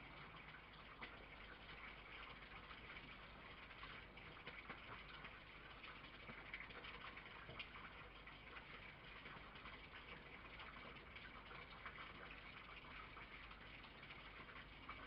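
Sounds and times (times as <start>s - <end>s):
faint steady hiss: 0.0s - 15.0s
light crackling ticks: 3.7s - 12.3s.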